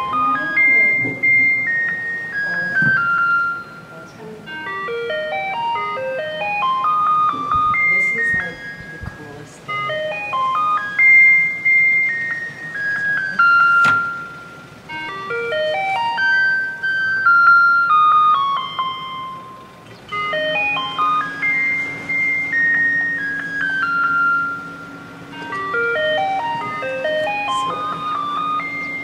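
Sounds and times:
electronic jingle over loudspeaker: 0:19.0 - 0:29.0.

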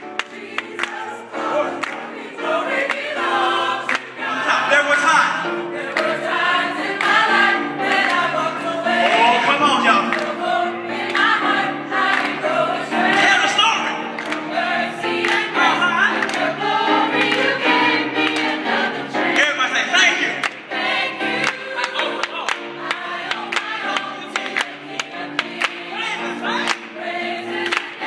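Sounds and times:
hand claps: 0:00.0 - 0:01.0, 0:01.8 - 0:02.2, 0:02.9 - 0:03.2, 0:03.9 - 0:04.1, 0:05.9 - 0:06.1, 0:07.0 - 0:07.3, 0:07.9 - 0:08.3, 0:09.0 - 0:10.4, 0:11.0 - 0:11.4, 0:12.0 - 0:12.4, 0:13.1 - 0:14.5, 0:15.2 - 0:15.6, 0:16.2 - 0:16.6, 0:17.2 - 0:17.6, 0:18.2 - 0:18.6, 0:20.4 - 0:20.6, 0:21.4 - 0:25.9, 0:26.7 - 0:26.9, 0:27.6 - 0:28.0
gospel choir singing: 0:00.0 - 0:28.0.

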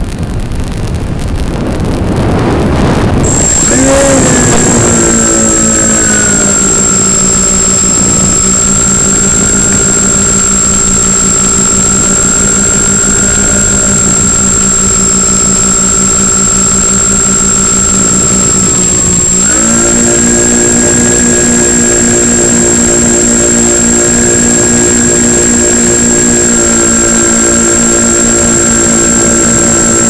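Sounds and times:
wind rushing on microphone: 0:00.0 - 0:23.4
model plane motors droning: 0:03.2 - 0:30.0.

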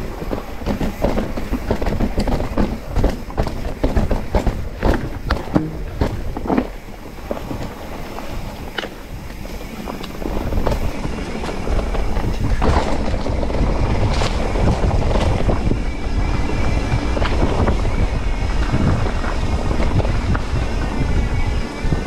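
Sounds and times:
bike knocks and rattles: 0:00.0 - 0:21.0
wind buffeting microphone: 0:00.0 - 0:22.0.

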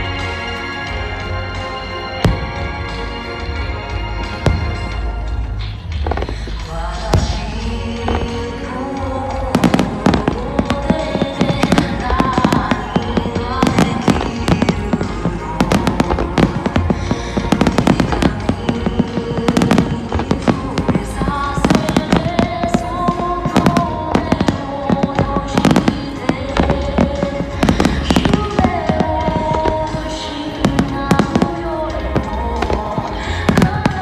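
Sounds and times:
music playing: 0:00.0 - 0:34.0.

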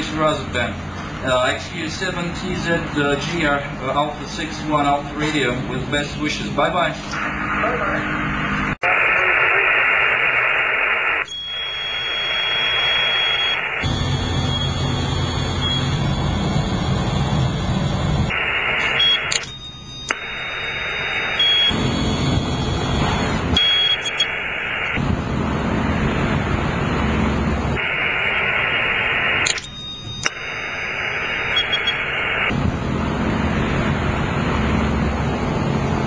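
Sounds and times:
radio receiver static: 0:06.6 - 0:32.7
brief high beeps: 0:21.4 - 0:24.3, 0:31.4 - 0:32.0.

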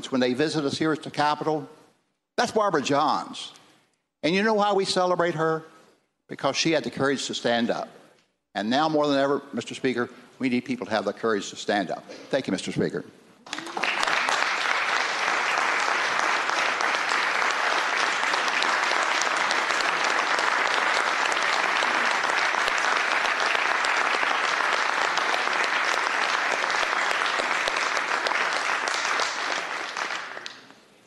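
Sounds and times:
crowd applauding: 0:13.4 - 0:30.7.

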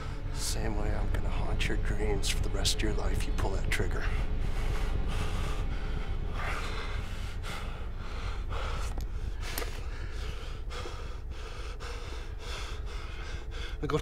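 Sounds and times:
low steady rumble: 0:00.0 - 0:14.0
man breathing hard: 0:04.1 - 0:13.8.

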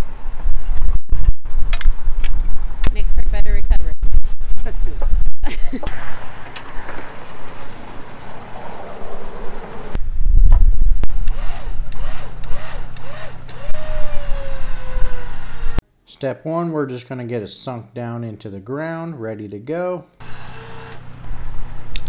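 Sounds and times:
wind gusts on microphone: 0:00.0 - 0:15.4
electric winch whine: 0:11.2 - 0:15.8, 0:20.2 - 0:22.0.

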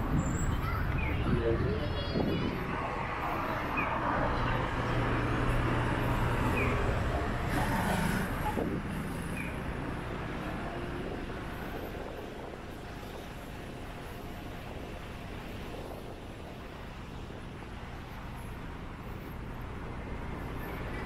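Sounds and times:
vehicle engine passing: 0:02.7 - 0:11.2.

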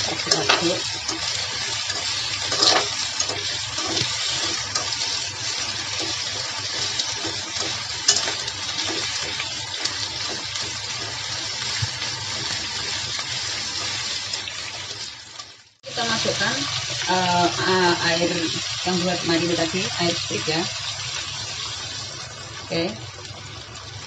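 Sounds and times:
metal tongs clacking on pan: 0:00.0 - 0:05.2, 0:05.9 - 0:10.8
food sizzling in oil: 0:00.0 - 0:24.0.

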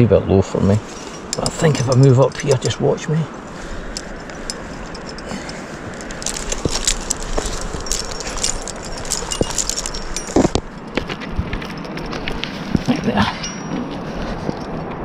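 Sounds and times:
sleeve scuffing over rock: 0:06.1 - 0:10.7.

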